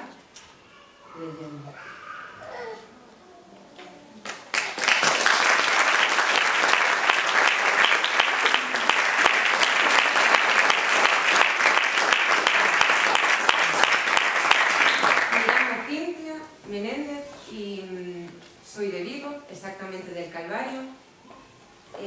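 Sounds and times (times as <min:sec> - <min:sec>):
audience applauding: 0:04.2 - 0:15.9.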